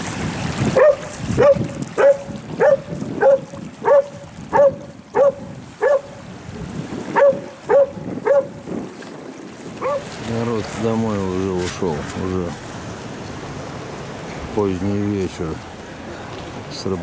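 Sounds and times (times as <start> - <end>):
dog barking: 0.8 - 6.2, 7.1 - 8.6, 9.8 - 10.1.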